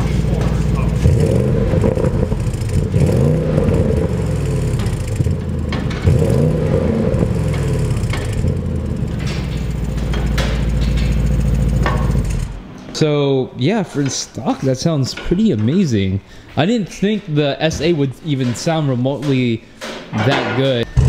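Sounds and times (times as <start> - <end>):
car engine revving and idling: 0.0 - 12.7.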